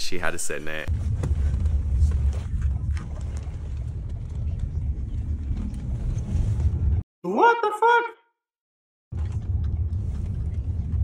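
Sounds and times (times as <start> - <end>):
road and engine rumble in car: 0.9 - 7.0, 9.2 - 11.0.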